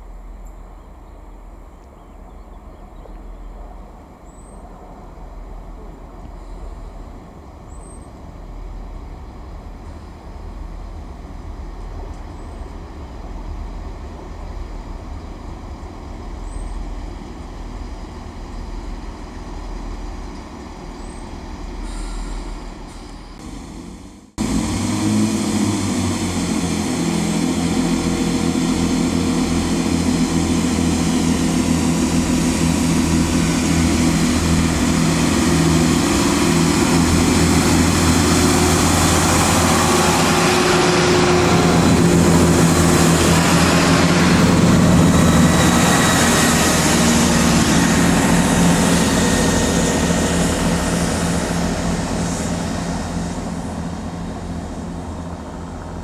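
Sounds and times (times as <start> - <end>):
train rumbling into platform: 0.0 - 56.0
diesel engines humming: 5.4 - 56.0.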